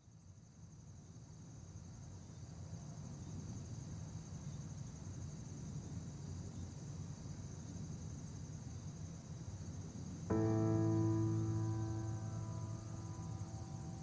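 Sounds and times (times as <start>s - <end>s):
insects trilling: 3.2s - 14.0s
low steady rumble: 10.3s - 14.0s.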